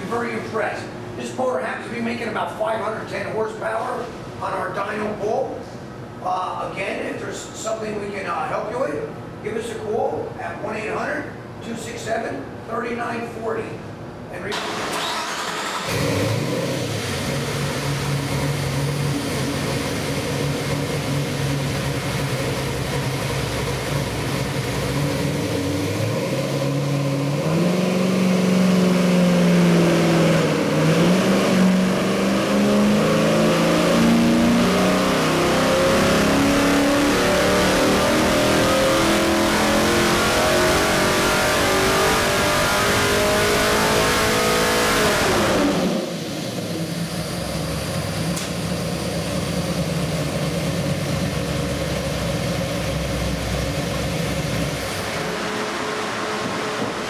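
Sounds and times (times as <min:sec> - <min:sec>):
engine revving on dynamometer: 0:14.5 - 0:57.0.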